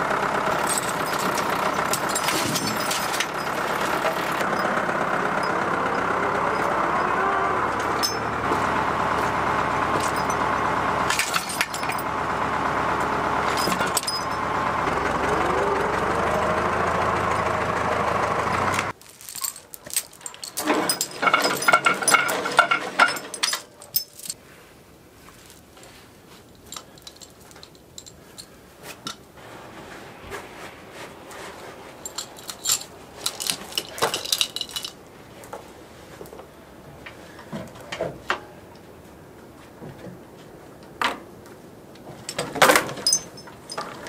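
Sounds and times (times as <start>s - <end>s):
tractor engine running: 0.0s - 24.4s, 26.8s - 39.4s, 41.8s - 44.0s
metallic clinks and jangles: 0.6s - 4.6s, 8.0s - 8.3s, 10.0s - 10.4s, 11.2s - 12.1s, 13.5s - 14.4s, 19.1s - 24.4s, 26.5s - 29.2s, 32.0s - 35.0s, 42.3s - 44.0s.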